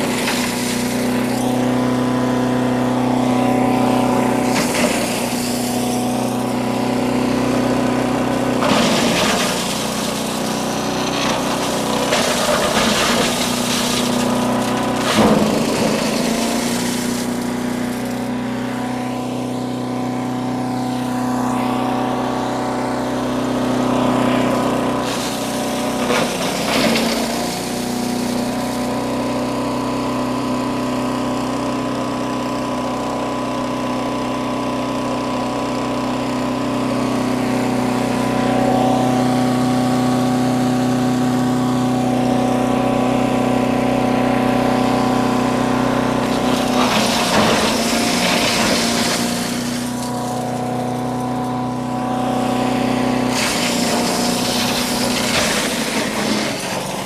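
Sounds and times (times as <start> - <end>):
wood being chipped grinding: 0.0 - 18.4, 24.5 - 29.0, 46.0 - 57.0
chipper shredder engine running: 0.0 - 57.0.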